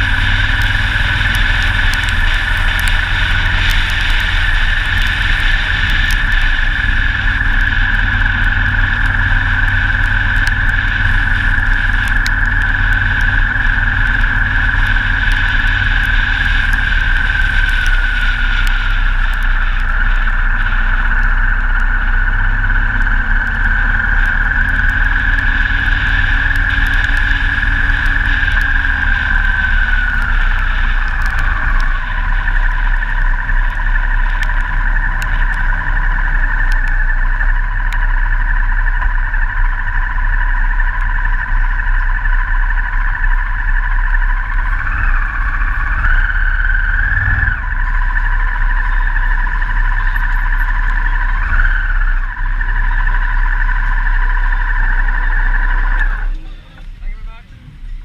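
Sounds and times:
motorcycle engine whine: 0:00.0 - 0:58.0
rushing wind: 0:00.0 - 0:58.0
tyres on wet road: 0:00.0 - 0:58.0.

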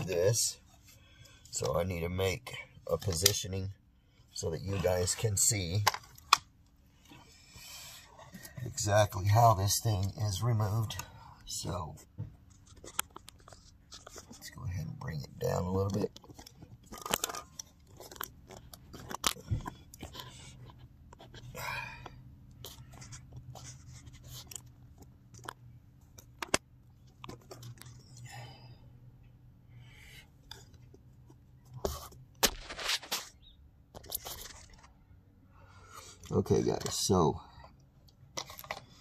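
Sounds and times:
handling clicks and knocks: 0:15.4 - 0:21.4.

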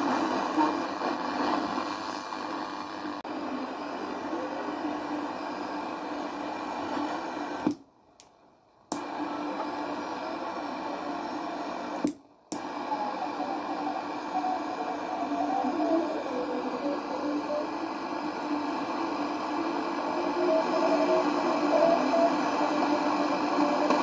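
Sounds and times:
radio static hiss: 0:00.0 - 0:24.0
click: 0:07.6 - 0:09.1, 0:12.0 - 0:12.7.

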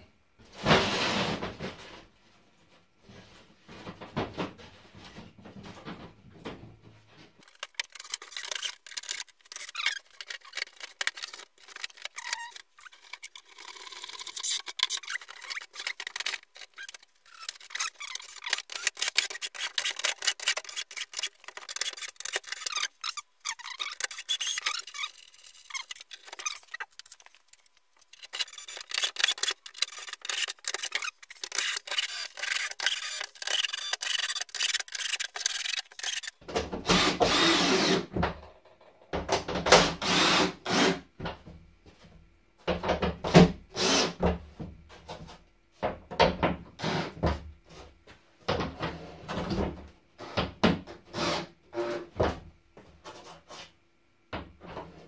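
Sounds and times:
foam panels creaking and rubbing: 0:00.4 - 0:38.2
scratchy crackle: 0:07.4 - 0:36.4.

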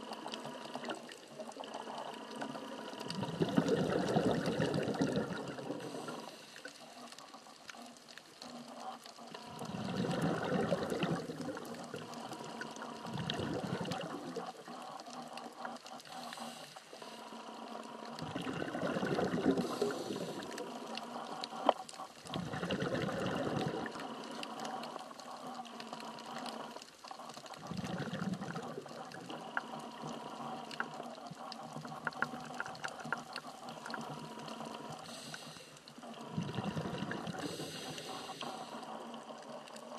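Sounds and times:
underwater bubbles rushing: 0:00.0 - 0:39.9
regulator hiss: 0:37.4 - 0:39.0.

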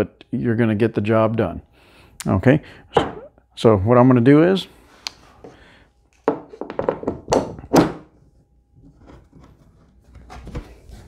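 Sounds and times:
clamp thunking on wooden board: 0:06.3 - 0:08.1.

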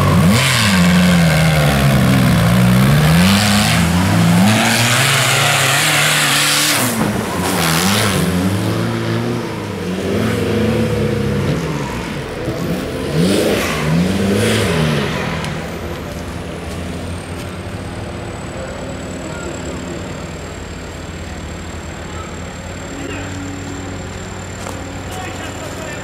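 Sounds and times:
tyres spraying mud: 0:00.0 - 0:09.2
off-road engines revving: 0:00.0 - 0:26.0.

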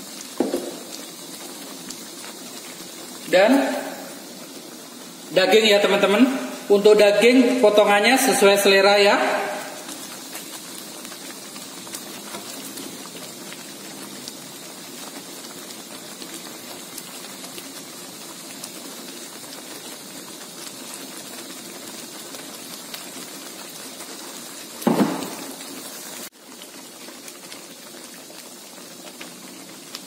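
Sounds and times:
sauce bubbling in a wok: 0:00.0 - 0:30.0
thump: 0:00.4 - 0:00.8, 0:24.8 - 0:25.5.

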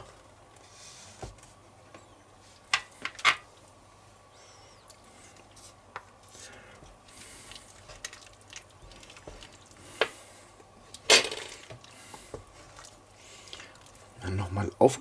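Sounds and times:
spoon stirring thick stew: 0:06.9 - 0:10.2.

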